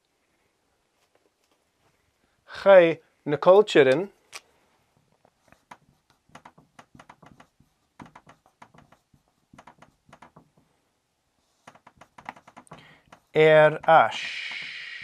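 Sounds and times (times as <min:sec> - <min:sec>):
marker scratching on paper: 0:05.4 - 0:10.6, 0:11.4 - 0:14.9.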